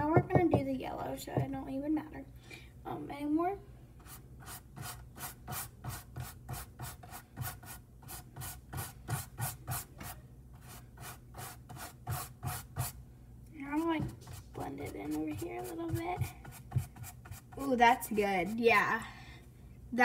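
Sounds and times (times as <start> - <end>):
paintbrush rubbing on canvas: 4.0 - 13.0, 13.7 - 18.6.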